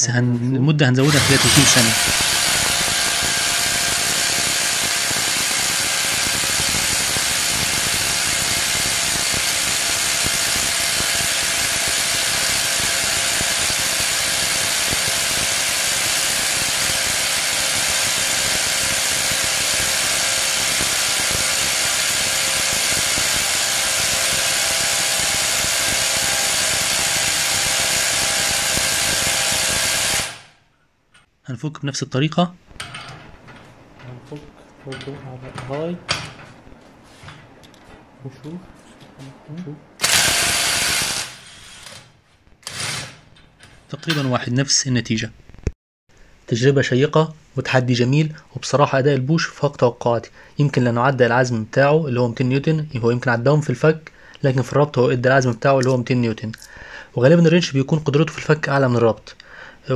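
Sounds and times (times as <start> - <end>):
motor whine: 1.0 - 30.6, 40.0 - 42.0
impact wrench hammering: 1.0 - 31.3, 40.0 - 44.2.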